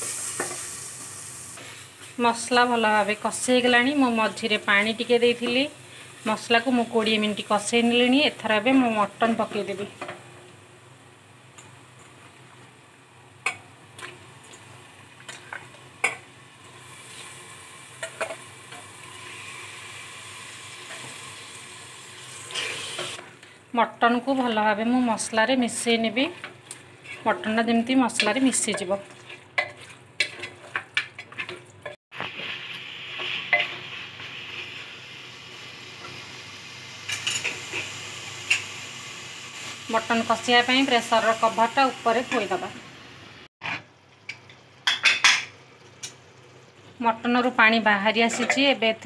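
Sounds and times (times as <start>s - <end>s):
meat sizzling in oil: 0.0s - 11.3s, 13.4s - 23.2s, 27.9s - 43.5s
spatula scraping a pot: 26.3s - 27.6s, 28.2s - 31.8s.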